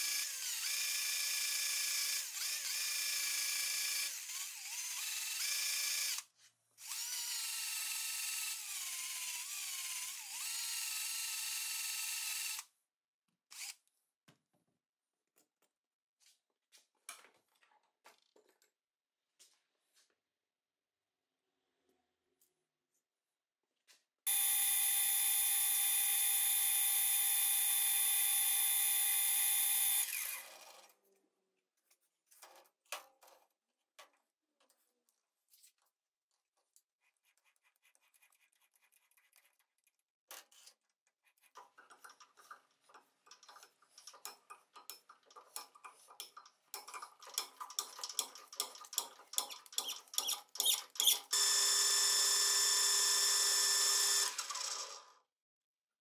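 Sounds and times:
small metal clicks and rattles: 41.5s - 51.2s.

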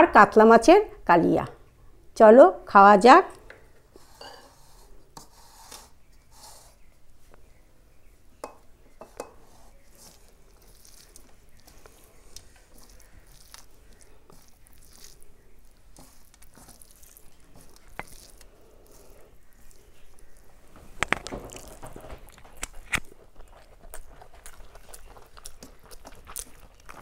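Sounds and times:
chewing: 9.7s - 27.0s.

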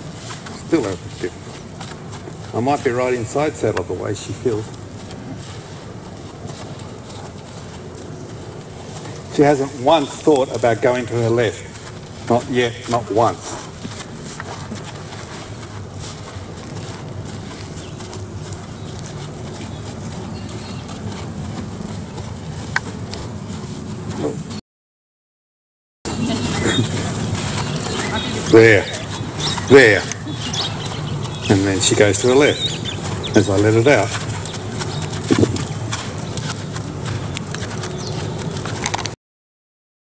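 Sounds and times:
horse hooves stepping in sand: 0.0s - 24.6s, 26.1s - 39.2s
outdoor rumble: 0.0s - 24.6s, 26.1s - 39.2s
bird chirp: 17.7s - 21.0s, 26.1s - 38.5s.

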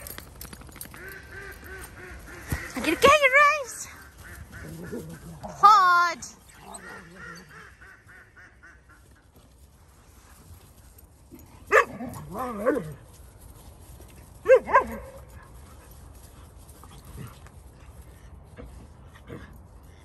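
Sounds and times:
young dogs barking and yipping: 0.0s - 9.2s, 11.3s - 13.2s, 14.2s - 17.8s.

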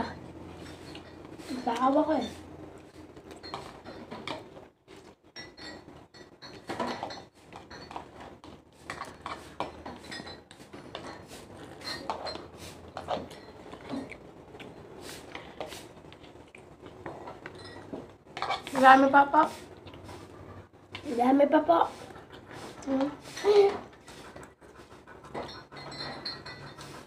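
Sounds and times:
dishes clinking: 3.2s - 4.5s, 5.2s - 14.2s, 17.0s - 18.8s, 25.3s - 27.0s
fork tapping and scraping plate: 5.4s - 14.1s.

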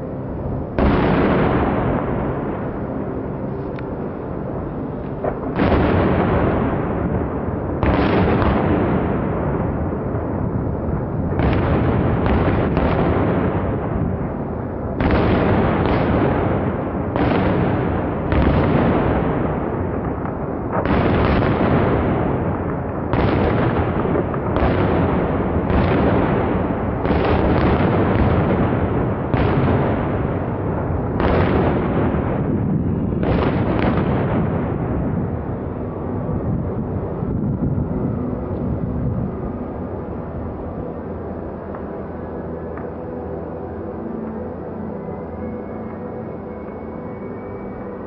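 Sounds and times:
continuous low rumble: 0.0s - 48.0s
fireworks booming: 0.7s - 3.5s, 5.1s - 39.6s.

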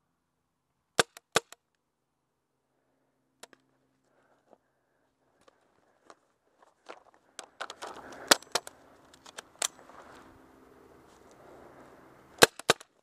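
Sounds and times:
rustling: 5.3s - 12.5s
small clicks: 6.9s - 9.8s.

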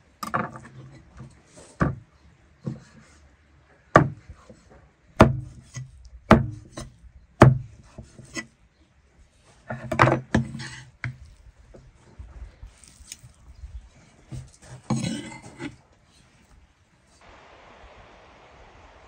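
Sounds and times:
blade chopping on wood: 5.2s - 5.6s, 6.3s - 7.7s.

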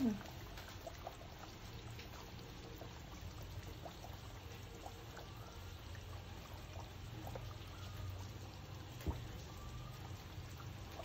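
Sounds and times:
oil pouring: 0.0s - 11.0s
small pops: 8.9s - 9.5s.

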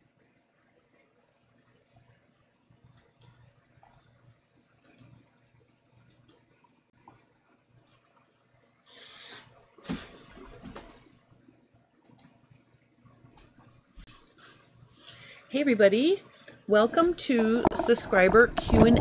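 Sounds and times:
faint scattered clicks: 2.8s - 4.0s, 4.8s - 5.3s, 6.0s - 7.2s, 11.9s - 12.5s.

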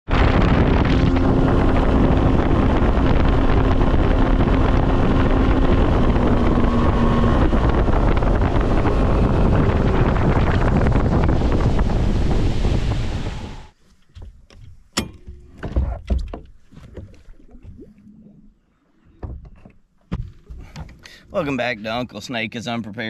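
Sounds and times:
wind rushing over microphone: 0.1s - 13.8s
motorboat engine: 0.1s - 22.0s.

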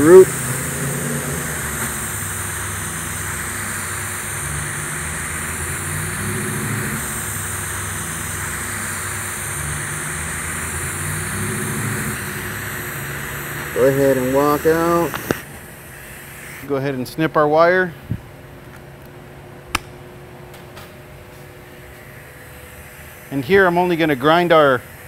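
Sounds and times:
low hum: 0.0s - 15.9s
welding arc hissing: 0.0s - 17.0s, 21.8s - 25.0s.

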